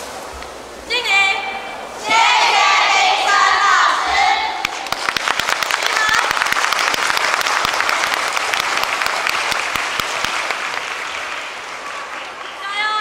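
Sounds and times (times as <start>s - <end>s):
audience applauding: 4.6s - 12.7s.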